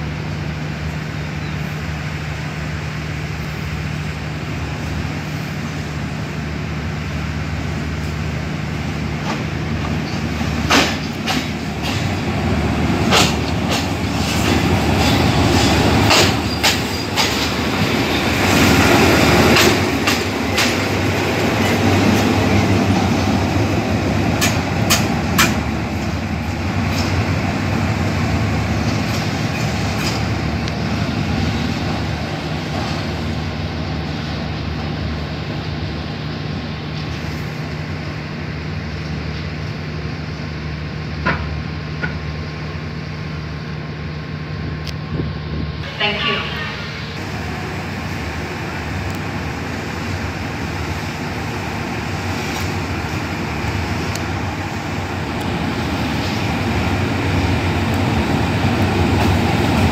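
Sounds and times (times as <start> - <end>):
locomotive engine drone: 0.0 - 59.9
wheels clacking over rail joints: 9.2 - 33.3.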